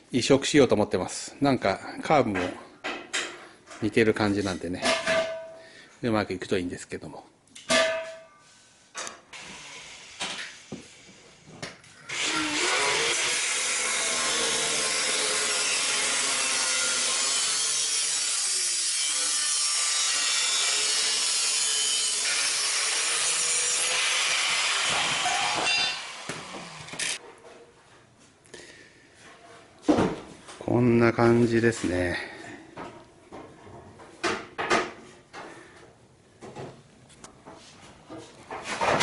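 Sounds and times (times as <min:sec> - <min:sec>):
angle grinder cutting steel pipe: 0:12.1 - 0:27.2.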